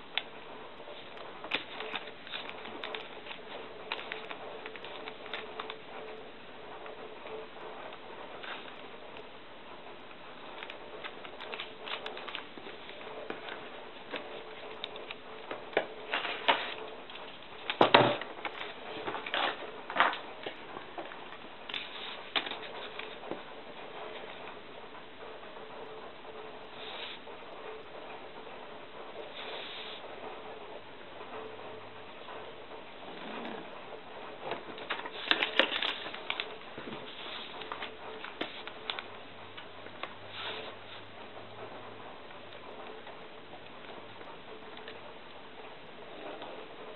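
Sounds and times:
steady low hiss: 0.0 - 46.9
paper crinkling and rustling: 0.9 - 5.8, 10.4 - 23.5, 34.5 - 41.0.

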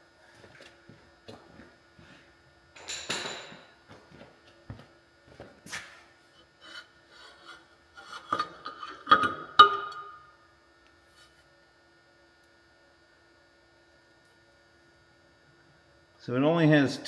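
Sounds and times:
metal sleeve scraping: 6.4 - 9.7.

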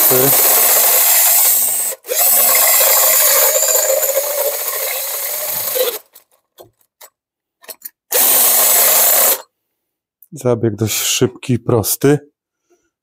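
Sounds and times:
drill boring into steel: 0.0 - 6.2, 8.1 - 9.5.

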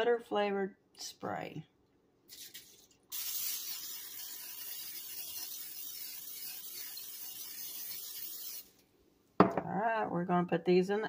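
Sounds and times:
cooking spray hissing: 2.3 - 8.8.

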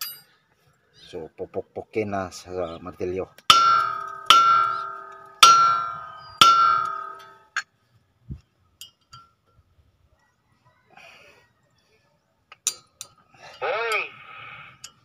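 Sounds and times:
hammer striking metal disc: 3.5 - 7.4.

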